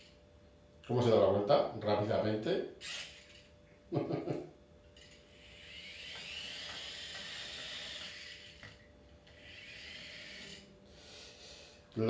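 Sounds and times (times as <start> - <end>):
small electric motors whining: 2.8 - 3.6, 4.9 - 11.8.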